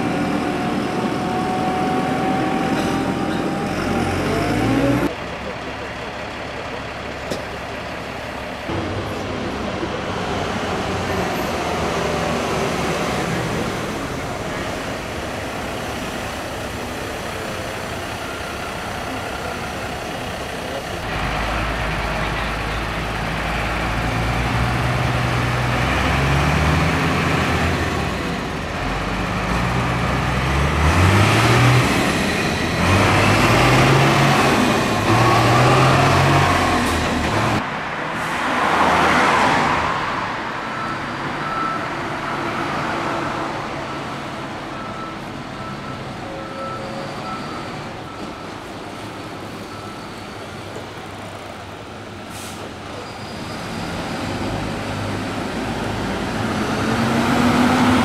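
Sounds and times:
heavy diesel truck revving: 0:00.0 - 0:48.2, 0:52.3 - 0:58.0
heavy truck driving by: 0:00.0 - 0:58.0
traffic: 0:00.0 - 0:58.0
vehicle rushing past: 0:32.8 - 0:40.7.

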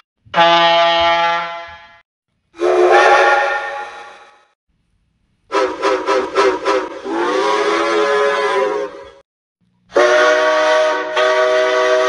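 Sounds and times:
train whistle blasts and toots: 0:00.3 - 0:02.0, 0:02.6 - 0:04.4, 0:05.5 - 0:09.2, 0:09.9 - 0:12.0.

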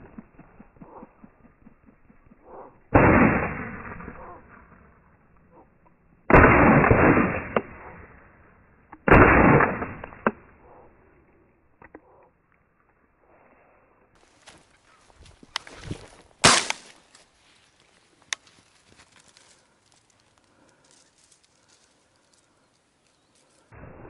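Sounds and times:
shotgun shots: 0:02.9 - 0:04.4, 0:06.3 - 0:08.2, 0:09.0 - 0:10.5, 0:16.4 - 0:17.0.

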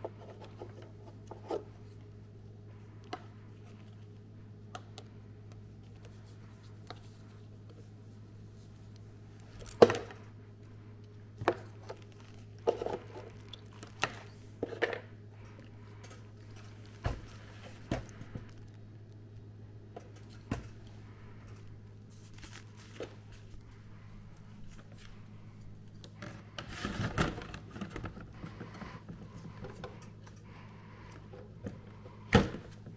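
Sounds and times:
steady low hum: 0:00.0 - 0:32.9
rustling packing: 0:11.4 - 0:14.8, 0:21.4 - 0:30.4
clicks and knocks of handling: 0:25.9 - 0:32.9.

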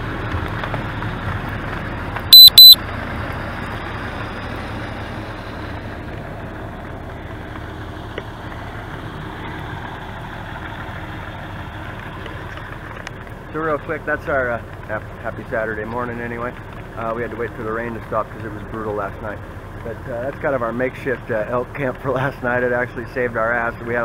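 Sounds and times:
high-pitched electronic beeps: 0:02.3 - 0:02.8.

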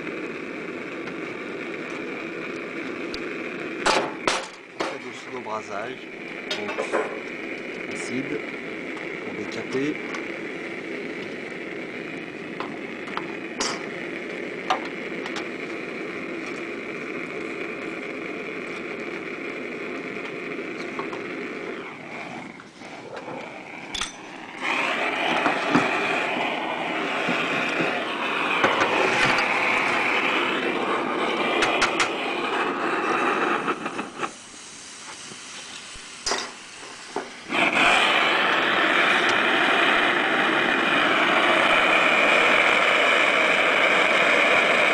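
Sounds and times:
gas burner hissing: 0:00.0 - 0:44.9.

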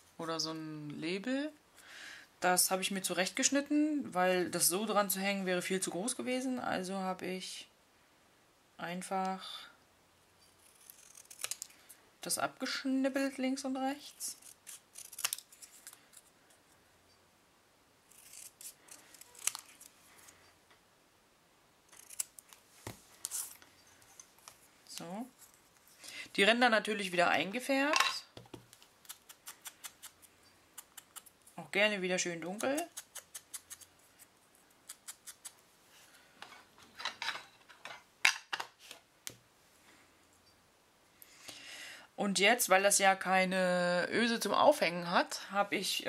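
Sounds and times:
scissors snipping paper: 0:10.6 - 0:11.7, 0:14.2 - 0:16.2, 0:18.1 - 0:19.9, 0:21.9 - 0:22.6, 0:28.7 - 0:31.4, 0:32.5 - 0:33.9.

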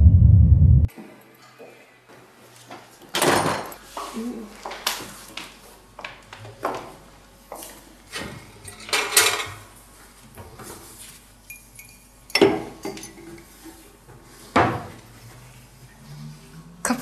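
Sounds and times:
dishes and cutlery clattering: 0:08.6 - 0:09.6, 0:11.5 - 0:13.5.

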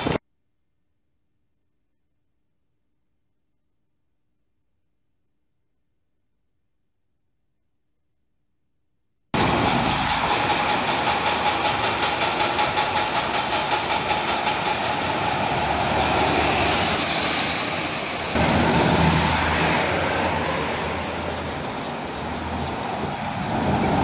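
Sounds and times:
high whine: 0:14.3 - 0:19.9.

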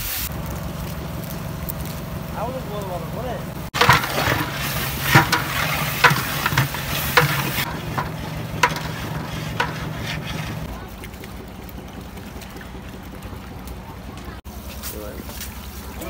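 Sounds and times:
meat sizzling in a metal pot: 0:03.6 - 0:10.7
ladle knocking and scraping pot: 0:03.8 - 0:10.7.

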